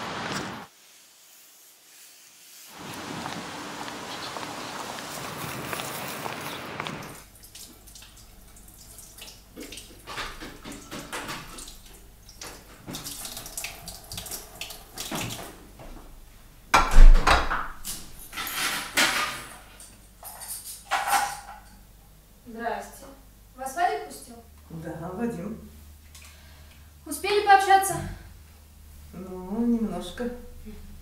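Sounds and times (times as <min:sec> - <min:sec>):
tap running into sink: 0:09.2 - 0:15.6
crockery clinking: 0:18.2 - 0:21.8.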